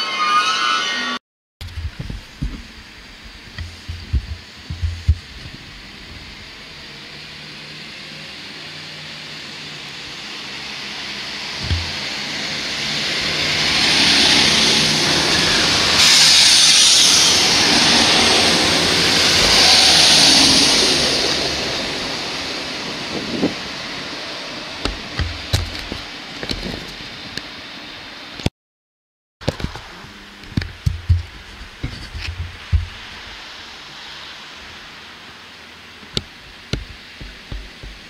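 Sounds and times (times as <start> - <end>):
train wheel and rail noise: 1.6 - 28.4, 29.5 - 38.0
train hiss passing: 2.6 - 24.8, 31.1 - 38.0
short low thump: 3.6 - 5.3, 11.6 - 12.0.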